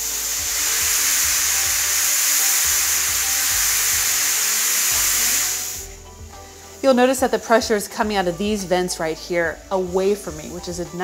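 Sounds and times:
steam hissing from pressure cooker: 0.0s - 6.8s.

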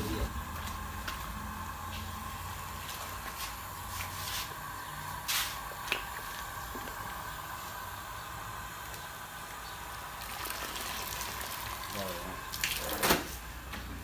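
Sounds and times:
steady hum: 0.0s - 10.4s
dye liquid splashing and dripping: 10.2s - 13.0s.

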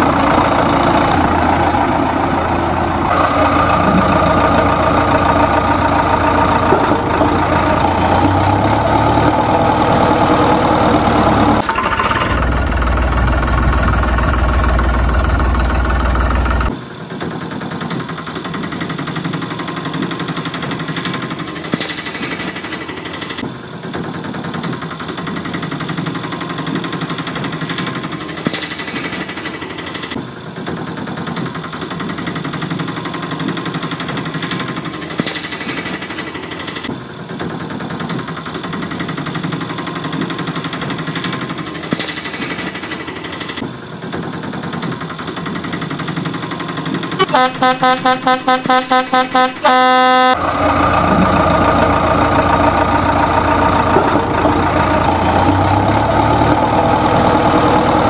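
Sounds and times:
motor running: 0.0s - 16.8s.

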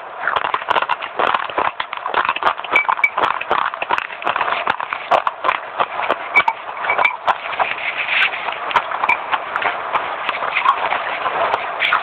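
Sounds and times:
crunchy chewing: 0.0s - 12.0s.

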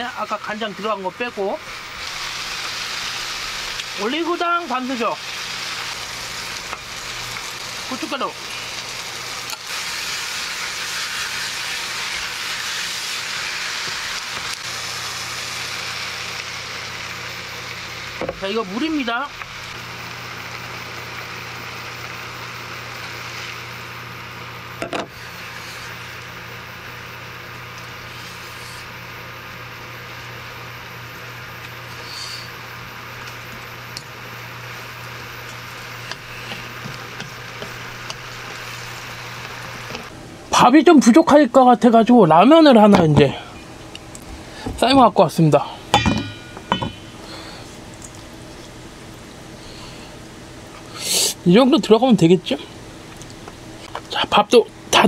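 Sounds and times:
vegetables sizzling in a wok: 0.0s - 51.6s
low steady hum: 0.0s - 55.0s
spatula knocking and scraping pan: 46.0s - 47.1s.

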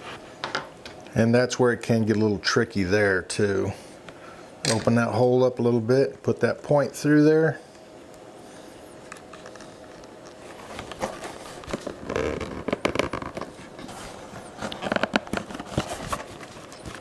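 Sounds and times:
leather rustling and scraping: 9.2s - 17.0s.

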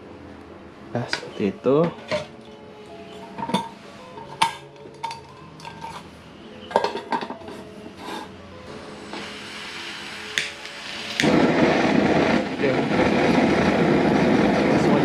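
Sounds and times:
metal pot and lid clinking: 1.9s - 2.5s, 3.2s - 8.3s
gas stove hissing: 7.8s - 15.0s.

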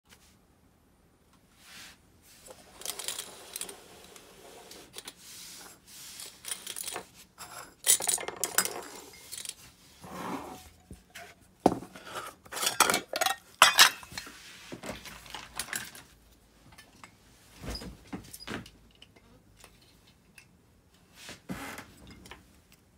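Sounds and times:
small metal parts clinking: 2.5s - 3.8s, 6.2s - 9.6s
metal parts rattling: 2.5s - 3.9s, 6.2s - 9.6s.

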